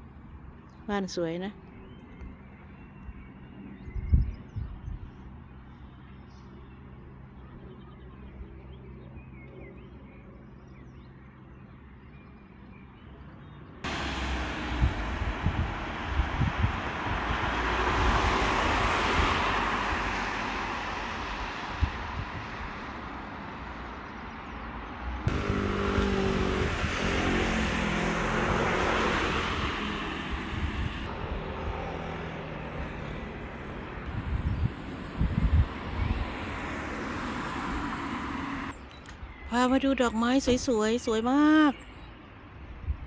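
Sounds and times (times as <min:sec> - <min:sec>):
vehicles passing: 0:12.7 - 0:42.8.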